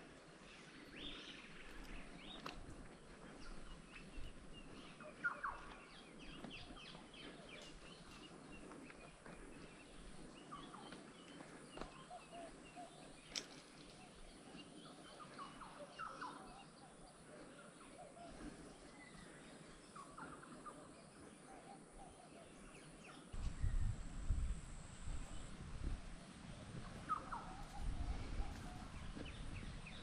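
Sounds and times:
birds chirping and calling: 0.5s - 23.9s, 26.2s - 30.0s.

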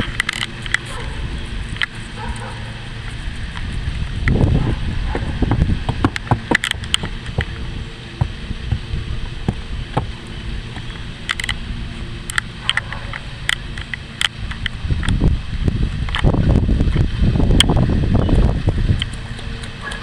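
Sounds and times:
hooves on wooden platform: 0.0s - 11.2s
wind rumbling on microphone: 0.0s - 20.0s.

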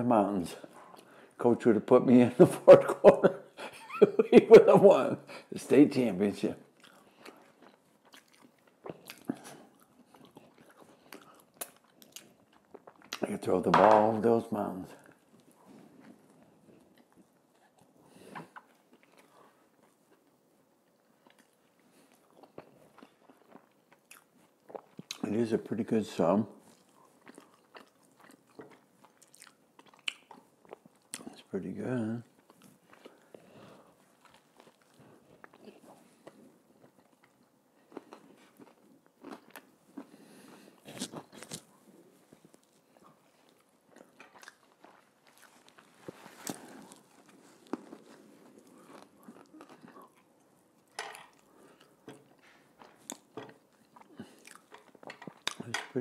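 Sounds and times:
faint chewing with mouth clicks: 0.6s - 1.4s, 6.6s - 13.5s, 14.9s - 26.0s, 26.6s - 56.0s
crackly snaps: 27.4s - 31.4s.

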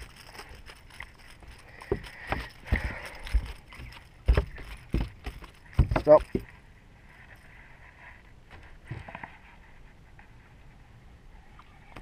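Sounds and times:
fish thumping on carpeted deck: 1.8s - 6.5s.

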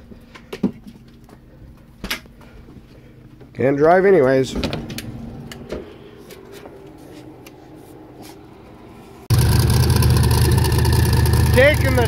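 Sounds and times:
loud engine idling: 9.3s - 12.0s.

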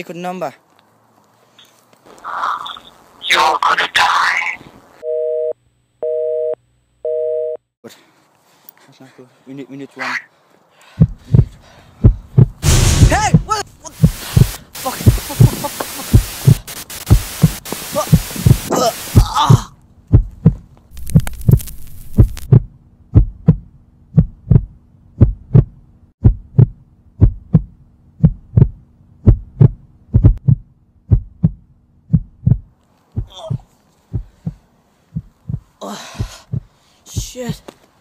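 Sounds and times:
heartbeat thuds: 11.0s - 37.4s
rustling: 20.6s - 22.5s.

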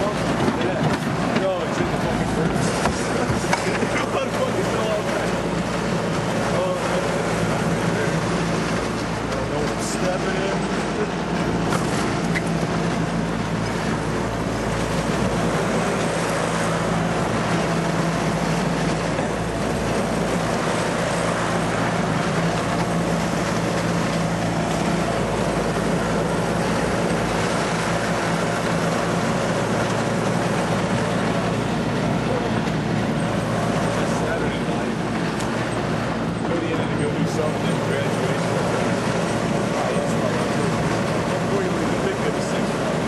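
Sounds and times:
riding lawnmower engine: 0.0s - 43.0s
trailer rolling over gravel: 0.0s - 43.0s.

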